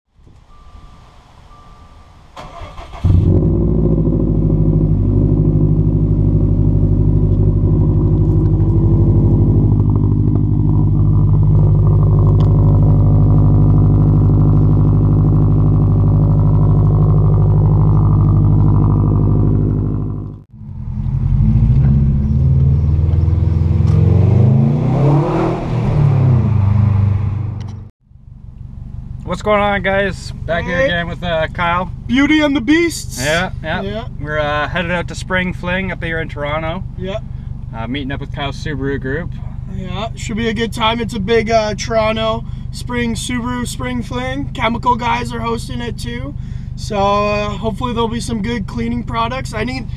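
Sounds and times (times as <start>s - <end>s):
car engine starting and idling: 0.2s - 49.9s
car engine accelerating: 2.4s - 27.9s.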